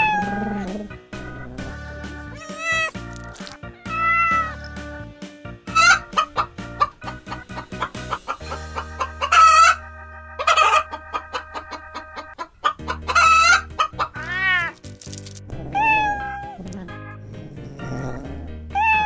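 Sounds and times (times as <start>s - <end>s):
chickens clucking: 5.7s - 9.8s, 10.4s - 14.3s.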